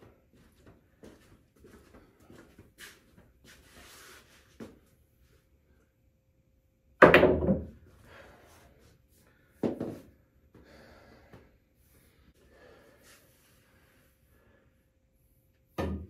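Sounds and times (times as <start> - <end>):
pool balls colliding: 7.0 - 7.8.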